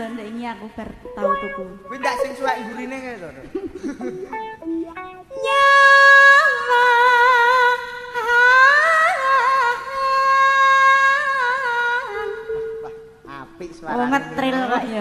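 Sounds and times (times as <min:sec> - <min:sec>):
woman singing with vibrato: 0:05.3 - 0:13.2, 0:13.9 - 0:15.0.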